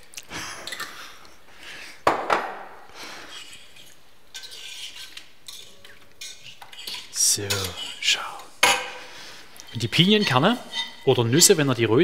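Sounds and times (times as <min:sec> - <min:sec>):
metal whisk scraping steel pot: 0:03.3 - 0:08.4, 0:09.6 - 0:12.0.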